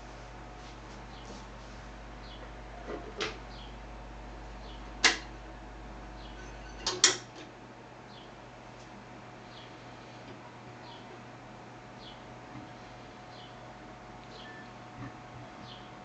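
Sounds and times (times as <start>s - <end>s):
low steady hum: 0.0s - 16.0s
record player clicks and knocks: 5.0s - 5.3s.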